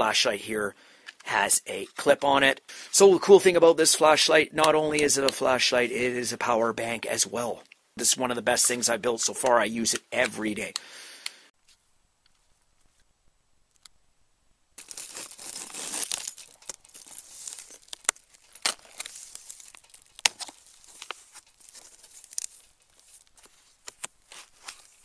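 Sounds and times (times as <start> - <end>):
packaging clicks: 14.8 - 25.0
packaging rustling: 14.8 - 25.0
tape and cardboard tearing: 14.8 - 25.0.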